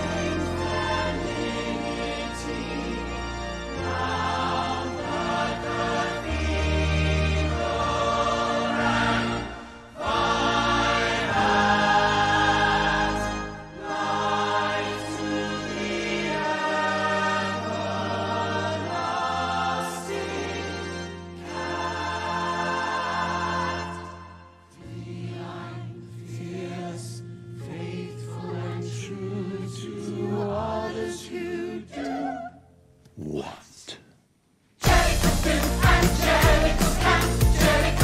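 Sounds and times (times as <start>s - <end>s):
ensemble of voices singing: 0.0s - 32.5s, 34.8s - 38.0s
orchestral backing: 34.8s - 38.0s.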